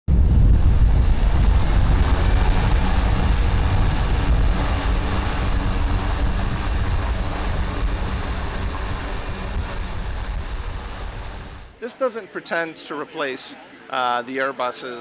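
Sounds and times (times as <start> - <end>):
wind rumble on microphone: 0.0 - 11.7
electric motor and propeller running: 0.1 - 11.8.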